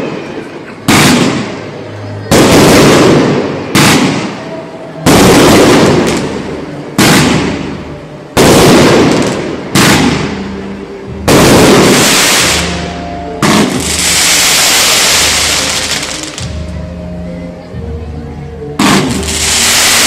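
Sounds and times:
fireworks bangs with rumbling tail: 0:00.9 - 0:01.7, 0:02.3 - 0:04.4, 0:05.0 - 0:10.5, 0:11.2 - 0:12.7, 0:13.4 - 0:16.6, 0:18.8 - 0:20.0.

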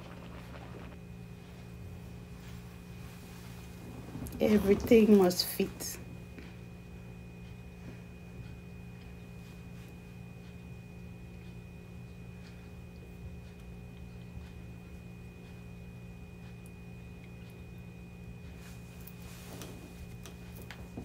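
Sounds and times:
faint high whine: 0:00.0 - 0:21.0
low hum: 0:00.0 - 0:21.0.

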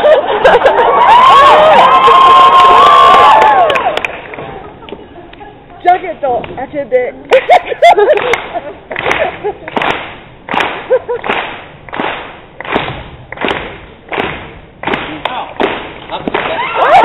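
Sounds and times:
crowd clapping in time: 0:02.0 - 0:04.4, 0:07.4 - 0:16.6.

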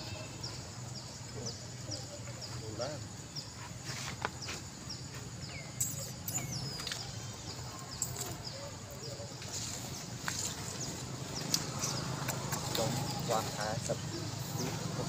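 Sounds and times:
bird chirping: 0:00.0 - 0:15.0.

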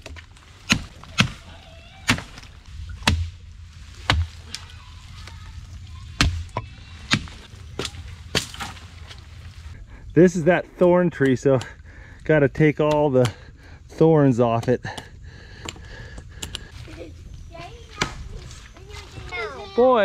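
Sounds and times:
machete chopping tree trunk: 0:00.0 - 0:01.4, 0:02.1 - 0:03.4, 0:04.0 - 0:04.4, 0:06.2 - 0:08.8.

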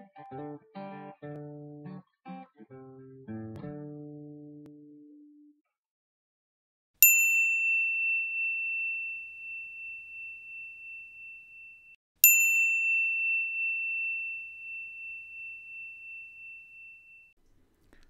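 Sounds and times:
bell-like dings: 0:07.0 - 0:17.4.

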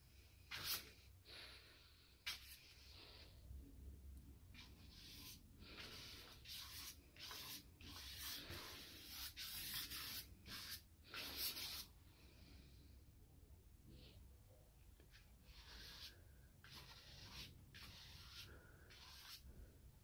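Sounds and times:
paintbrush swishing on paper: 0:00.4 - 0:01.1, 0:02.2 - 0:03.4, 0:04.5 - 0:12.0, 0:15.1 - 0:19.6.

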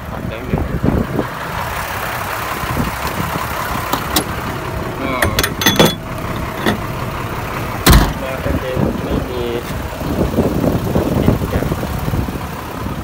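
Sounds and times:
road noise: 0:00.0 - 0:13.0
vehicle engine: 0:00.0 - 0:13.0
sharp clicks and knocks: 0:03.9 - 0:04.4, 0:05.2 - 0:06.9.

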